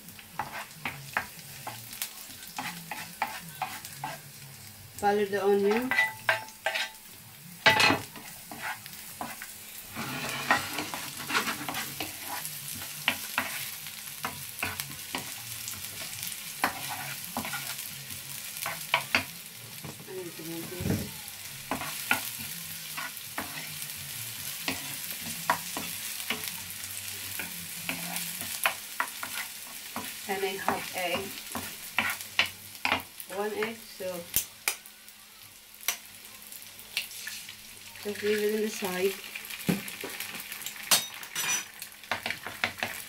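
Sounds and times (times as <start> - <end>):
garlic and onion sizzling in oil: 0.0 - 43.0
spatula scraping and tapping pan: 0.4 - 4.2, 5.6 - 7.0, 7.6 - 17.8, 18.6 - 20.0, 21.7 - 23.8, 24.6 - 26.5, 27.4 - 34.8, 39.6 - 43.0.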